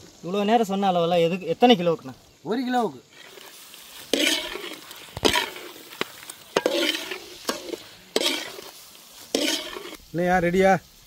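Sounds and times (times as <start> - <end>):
metal ladle scraping pot: 3.1 - 10.0
ladle knocking pot side: 6.5 - 8.6.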